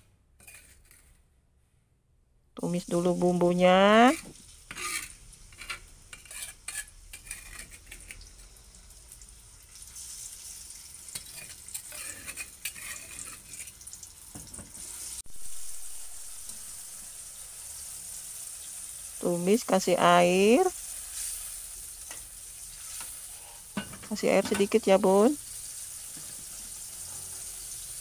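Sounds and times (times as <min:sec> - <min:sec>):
metal spatula scraping wok: 0:00.4 - 0:01.2, 0:03.8 - 0:08.2, 0:11.1 - 0:13.8, 0:20.8 - 0:25.2
light sizzle: 0:02.6 - 0:28.0.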